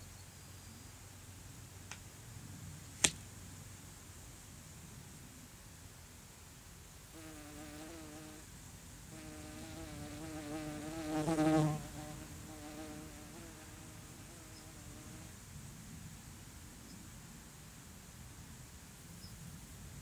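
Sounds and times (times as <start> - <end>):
flying insect buzzing: 7.2 - 8.4, 9.1 - 15.3.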